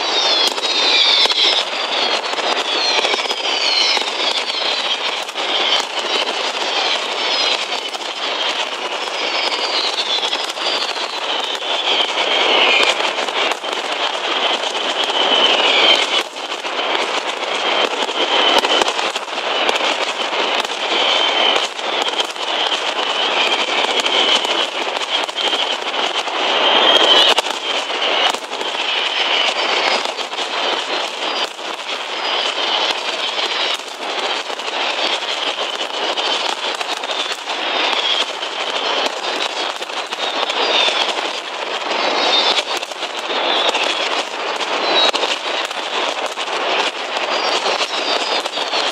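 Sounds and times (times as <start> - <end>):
high descending whistles: 0.0 - 8.4, 9.0 - 13.0
firecrackers crackling and banging: 0.0 - 48.9.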